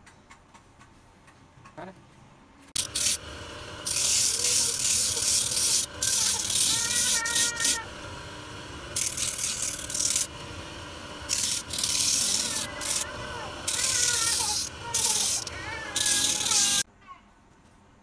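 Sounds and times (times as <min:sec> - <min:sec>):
sanding drum motor hum: 0:02.7 - 0:16.8
shoe sole on sanding drum: 0:03.9 - 0:07.9, 0:11.3 - 0:16.8.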